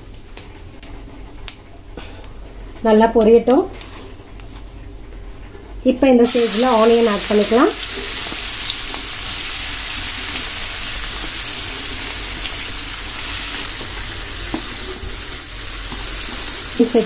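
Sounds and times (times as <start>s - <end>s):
oil and butter sizzling: 6.2s - 17.0s.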